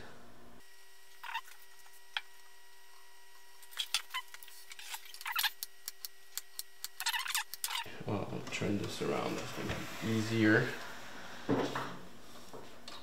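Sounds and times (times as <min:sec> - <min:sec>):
faint steady hum: 0:00.0 - 0:13.0
tools scraping and rubbing: 0:03.6 - 0:07.9.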